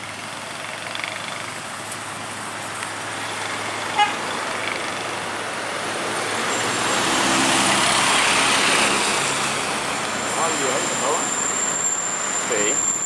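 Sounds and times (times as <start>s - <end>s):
minibus engine passing: 0.0s - 13.0s
road noise: 0.0s - 13.0s
short horn toot: 4.0s - 4.2s.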